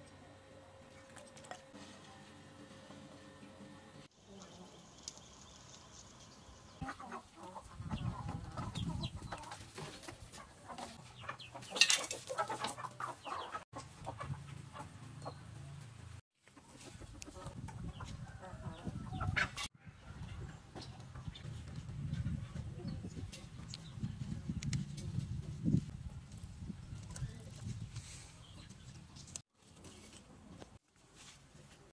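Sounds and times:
chickens clucking: 0:04.3 - 0:25.2.

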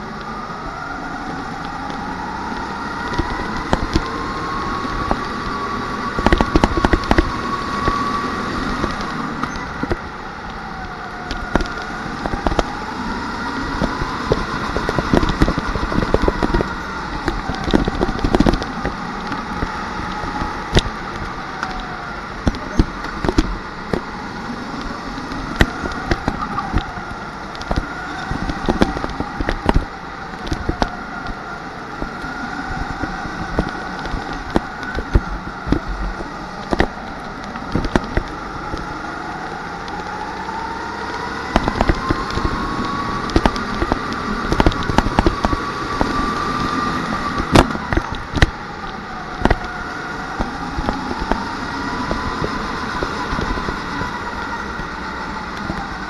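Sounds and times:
kart engine: 0:00.0 - 0:56.0
kart clicks and knocks: 0:25.2 - 0:55.0.

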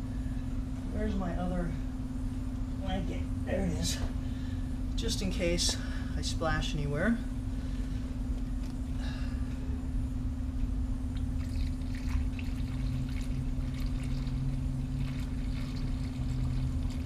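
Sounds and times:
steady low hum: 0:00.0 - 0:17.0
liquid pouring into funnel: 0:11.1 - 0:17.0.

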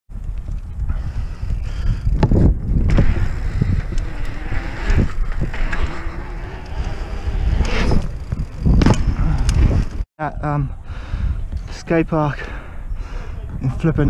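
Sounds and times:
knobby tyres rumbling on concrete: 0:00.1 - 0:10.1
wind on microphone: 0:00.1 - 0:14.0.

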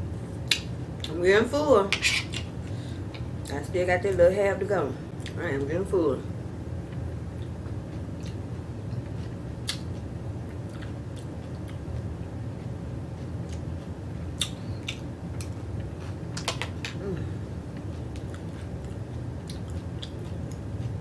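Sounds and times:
steady low hum: 0:00.0 - 0:21.0
person chewing crunchy chips: 0:17.7 - 0:21.0.

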